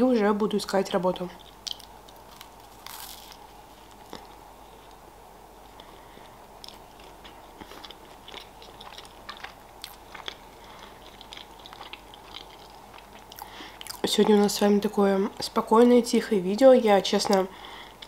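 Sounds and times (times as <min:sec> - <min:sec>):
person chewing pastry: 0:01.4 - 0:05.0, 0:05.6 - 0:14.5.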